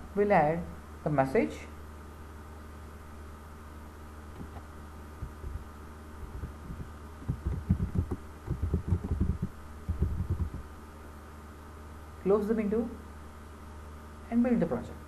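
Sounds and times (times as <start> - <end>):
steady low hum: 0.0 - 15.0
computer keyboard keystrokes: 6.7 - 10.6.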